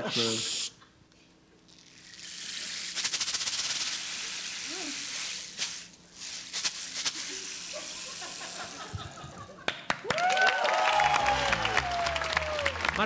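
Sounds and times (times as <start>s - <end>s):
rain stick rattling: 1.7s - 4.6s
audience clapping and whooping: 9.6s - 13.0s.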